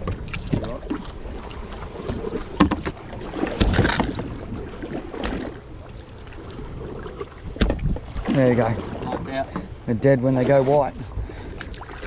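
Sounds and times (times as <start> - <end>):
knocks and clatters on boat: 0.0 - 5.6, 6.8 - 12.0
wind noise on microphone: 6.8 - 8.3.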